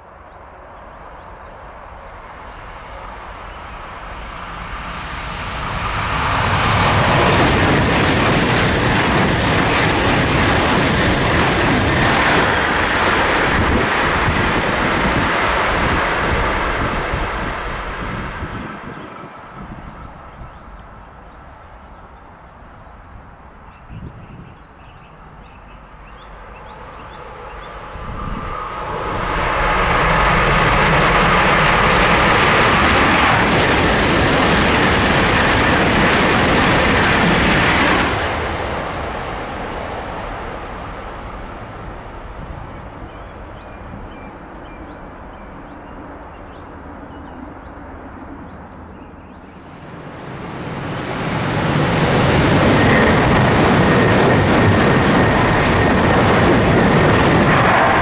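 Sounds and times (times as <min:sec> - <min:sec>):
high-speed train rushing past: 0:00.0 - 0:58.0.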